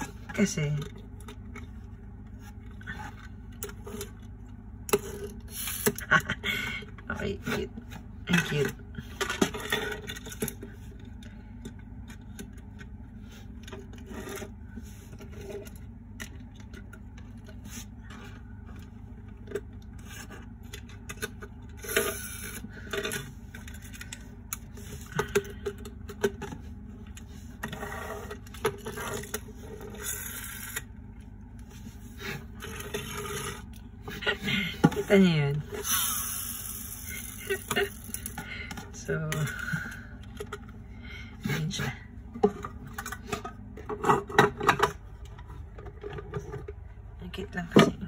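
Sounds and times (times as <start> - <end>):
steady low hum: 0.0 - 48.0
toy trucks scraping on tabletop: 27.6 - 30.8, 32.2 - 33.7.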